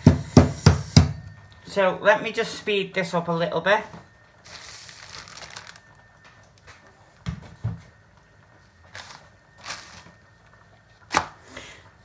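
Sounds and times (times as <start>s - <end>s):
plastic bag crinkling: 4.4s - 6.0s, 8.9s - 10.2s
dog biscuits crushed: 4.5s - 5.9s.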